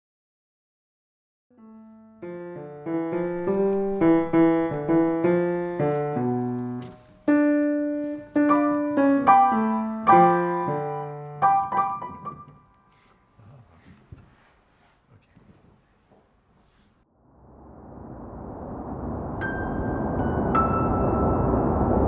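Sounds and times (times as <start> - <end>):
piano melody: 1.5 - 13.1, 18.8 - 22.0.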